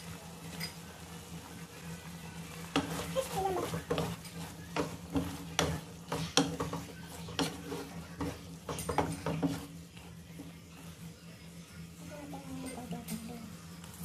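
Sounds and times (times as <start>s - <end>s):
wooden spatula scraping frying pan: 2.6s - 9.8s.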